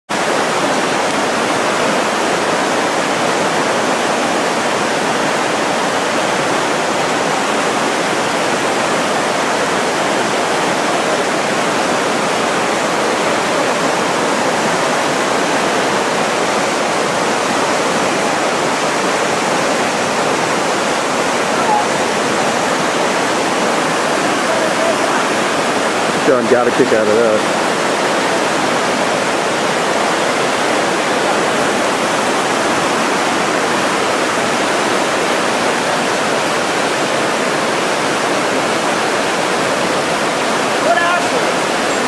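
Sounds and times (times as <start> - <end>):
river rapids rushing: 0.1 - 42.0.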